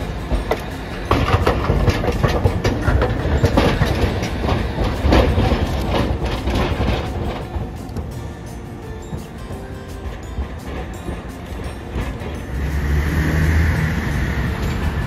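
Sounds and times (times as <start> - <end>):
tram wheels clattering over points: 0.0 - 15.0.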